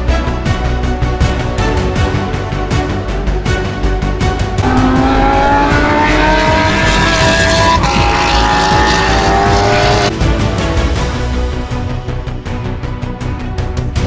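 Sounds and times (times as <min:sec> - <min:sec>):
background music with beat: 0:00.0 - 0:14.0
racing engine accelerating: 0:04.6 - 0:10.1.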